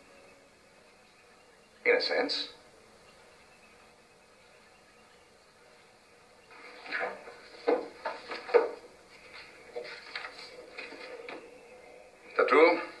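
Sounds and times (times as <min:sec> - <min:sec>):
papers rustling on a desk: 0:06.5 - 0:11.5.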